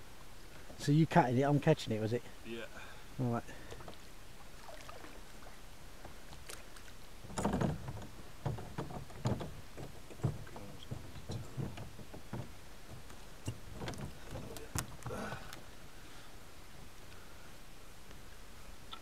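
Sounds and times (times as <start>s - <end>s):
knocks and bumps from small boat: 7.2s - 15.6s.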